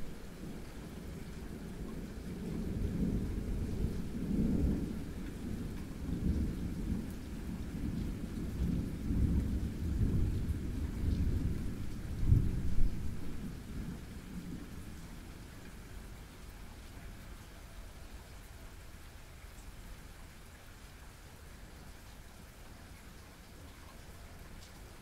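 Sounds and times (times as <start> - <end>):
rolling thunder: 2.5 - 14.7.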